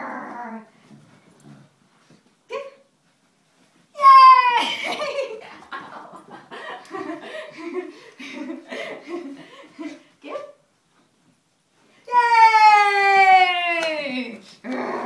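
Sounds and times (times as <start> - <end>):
person's high excited call: 4.0 - 4.8.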